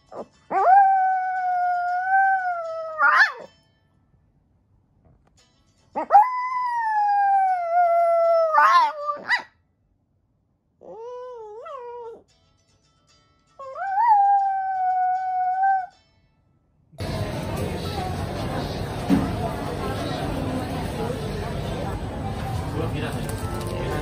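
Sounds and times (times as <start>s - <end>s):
small dog howling: 0.5s - 3.5s, 6.0s - 9.5s, 10.8s - 12.2s, 13.6s - 15.9s.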